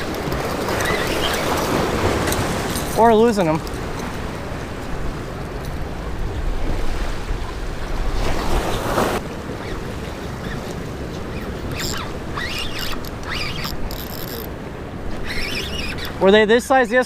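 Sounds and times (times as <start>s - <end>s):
short high squeaks: 0.0s - 1.7s, 11.3s - 14.5s, 15.1s - 16.2s
waves breaking on rocks: 0.0s - 17.0s.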